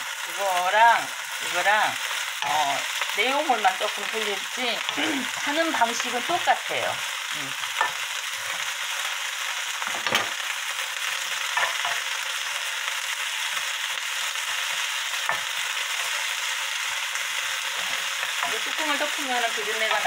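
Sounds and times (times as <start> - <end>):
food sizzling in frying pan: 0.0 - 20.0
wooden spoons knocking on pan: 9.8 - 10.4, 11.6 - 12.0.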